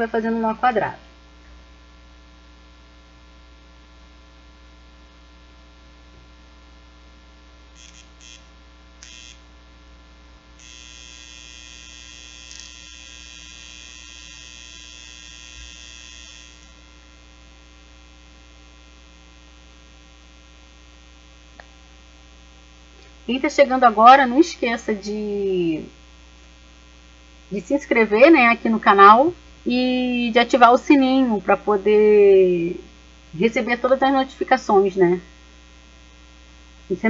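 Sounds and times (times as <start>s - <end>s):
electrical mains hum: 0.0s - 37.0s
faint scratchy sounds: 27.4s - 35.4s.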